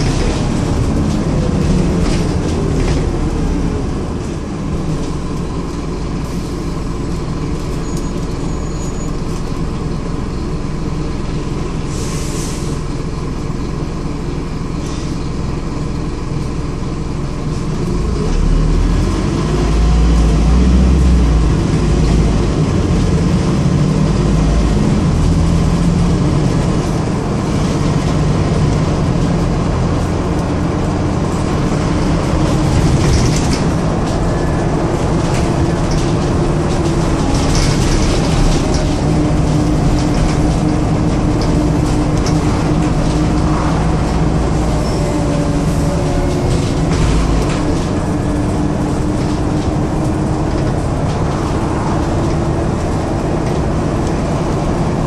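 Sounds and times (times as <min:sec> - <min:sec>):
bus engine drone: 0:00.0 - 0:55.0
road rumble: 0:00.0 - 0:55.0
short air hiss: 0:11.9 - 0:12.8.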